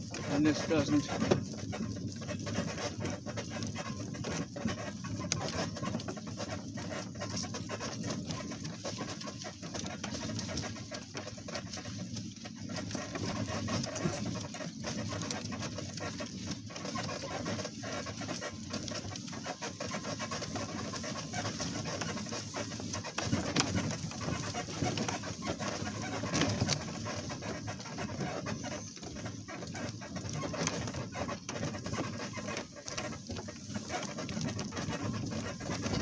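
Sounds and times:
animal panting: 0:00.0 - 0:36.0.

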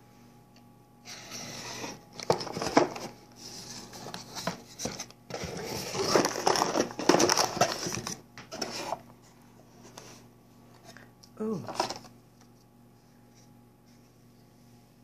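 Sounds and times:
cardboard flaps scraping and rustling: 0:01.1 - 0:09.0.

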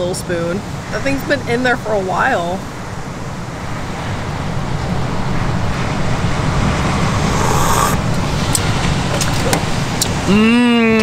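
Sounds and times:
wind and surf rumble: 0:00.0 - 0:11.0
person slurping broth: 0:07.2 - 0:08.0.

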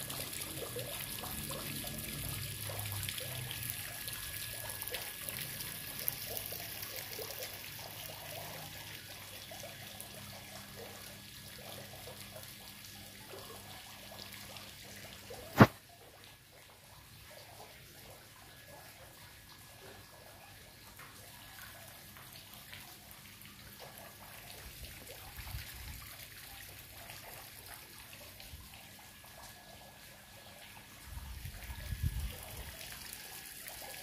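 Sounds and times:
water trickling: 0:00.0 - 0:34.0
sharp click: 0:15.5 - 0:15.8.

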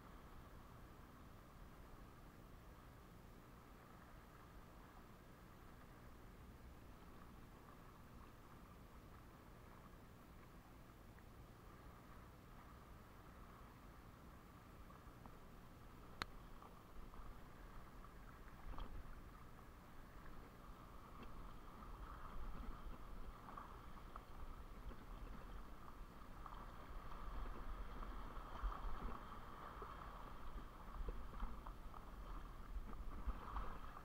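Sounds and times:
small waves lapping over rocks: 0:16.0 - 0:34.0.

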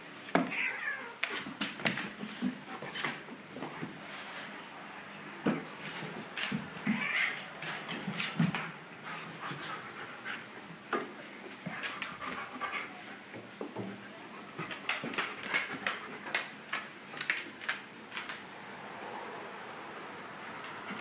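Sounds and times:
dog panting: 0:09.0 - 0:10.8.

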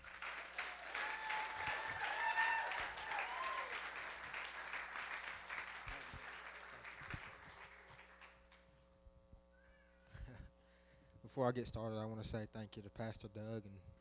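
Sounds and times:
congregation applauding: 0:00.0 - 0:08.6.

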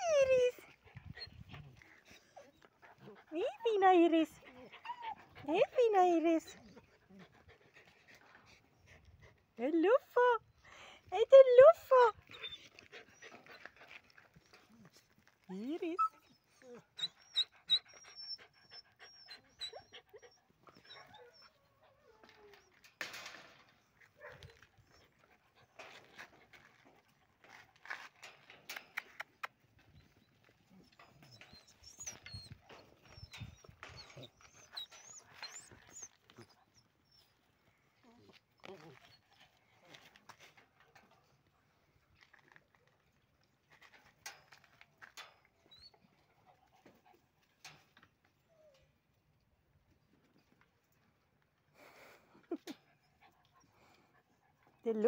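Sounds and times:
puppies whimpering: 0:15.9 - 0:22.9, 0:30.1 - 0:39.2.

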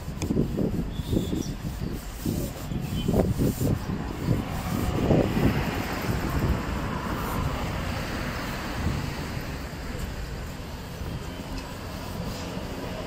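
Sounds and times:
passing street traffic: 0:00.0 - 0:13.0.

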